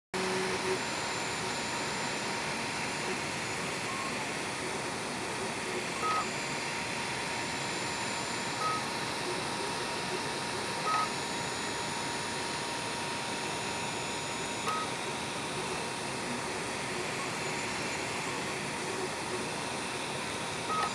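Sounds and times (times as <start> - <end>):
stepper motor beeping tones: 0.2 - 4.3, 5.7 - 6.6, 7.6 - 9.2, 10.8 - 11.9, 13.2 - 15.0, 20.7 - 20.9
printer fans and motors whirring: 0.2 - 20.9.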